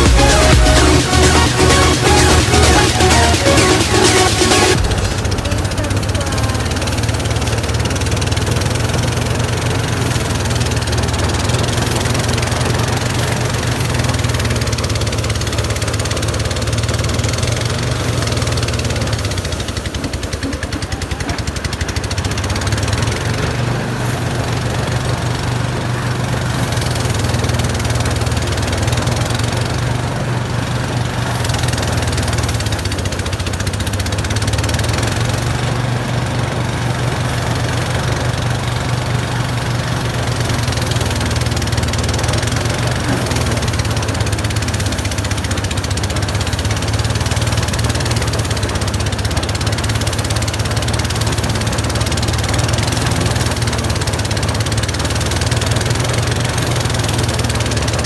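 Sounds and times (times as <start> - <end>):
low engine hum: 0.0 - 58.0
thresher rushing noise: 0.0 - 58.0.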